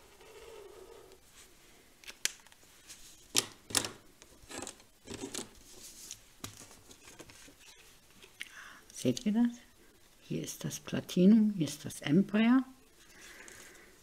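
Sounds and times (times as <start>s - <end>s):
pens and card rustling: 2.0s - 7.5s.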